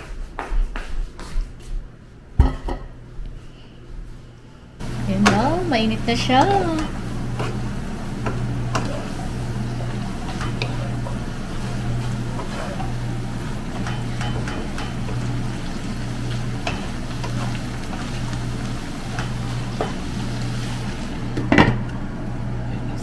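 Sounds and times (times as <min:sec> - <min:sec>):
steady low hum: 0:02.6 - 0:23.0
food sizzling in a wok: 0:04.8 - 0:21.5.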